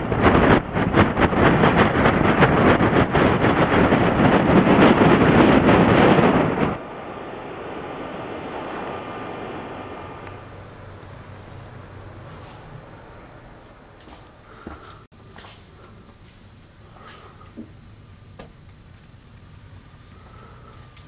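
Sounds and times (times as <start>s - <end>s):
loud wind: 0.0s - 15.1s
machinery noise: 0.0s - 21.0s
steady indoor hum: 0.0s - 21.0s.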